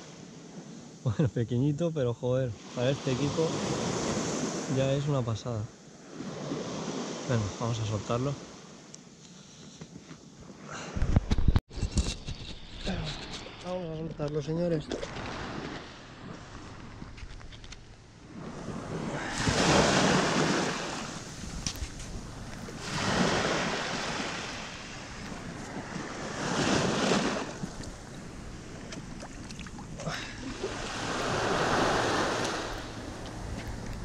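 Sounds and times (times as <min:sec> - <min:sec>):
small waves breaking on sand: 0:02.6 - 0:05.2, 0:05.9 - 0:08.9, 0:14.9 - 0:17.2, 0:18.0 - 0:34.0.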